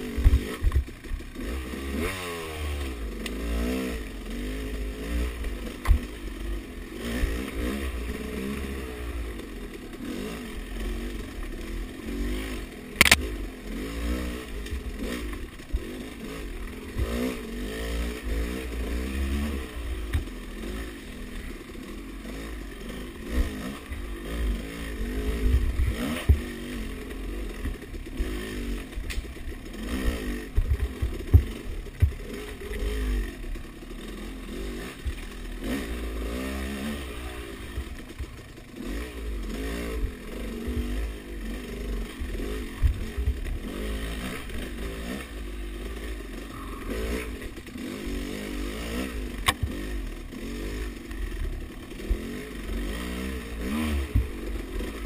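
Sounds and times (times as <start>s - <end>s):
dirt bike engine revving: 0.0s - 55.0s
bike knocking over rough ground: 30.0s - 32.2s.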